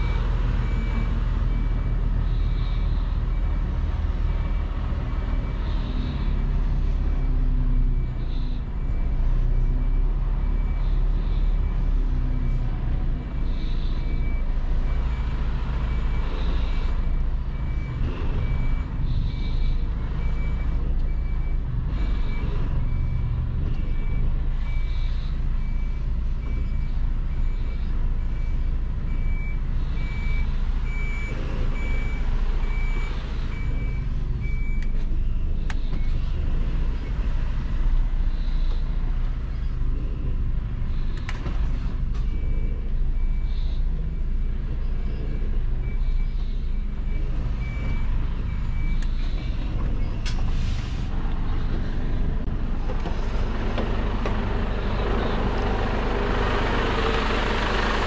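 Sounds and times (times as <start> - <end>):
reversing alarm beeping: 0.0 - 58.0
truck engine rumble: 0.0 - 58.0.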